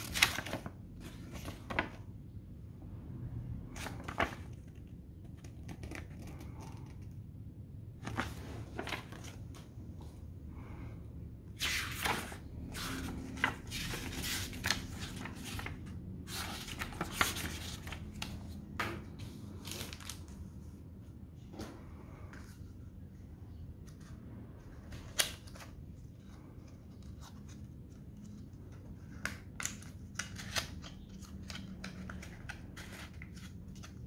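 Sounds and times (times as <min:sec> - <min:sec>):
paper rustling: 0:00.0 - 0:02.1, 0:03.7 - 0:07.0, 0:08.0 - 0:09.7, 0:11.6 - 0:20.4, 0:24.8 - 0:34.0.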